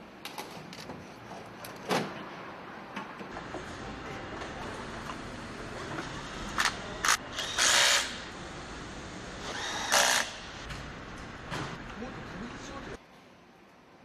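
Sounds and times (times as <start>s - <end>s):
power tool bursts: 7.4s - 8.2s, 9.4s - 10.5s.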